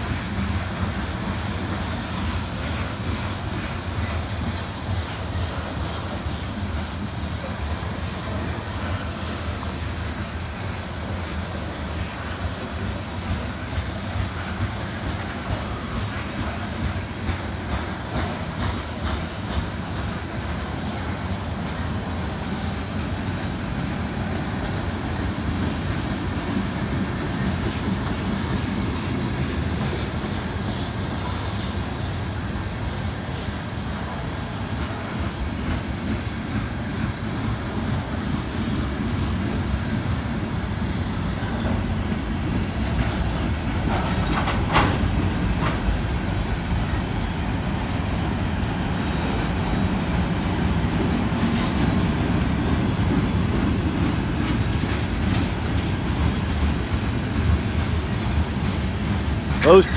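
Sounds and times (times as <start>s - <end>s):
clicking over rail joints: 0.0s - 46.3s
train wheels rumbling on rails: 0.0s - 59.9s.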